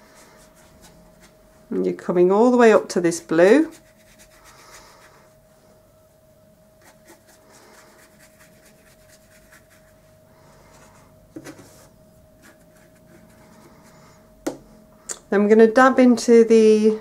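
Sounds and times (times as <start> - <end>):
faint steady hum: 0.0 - 17.0
brush bristles rubbing on paper: 3.2 - 5.2, 6.8 - 10.1, 11.6 - 13.9.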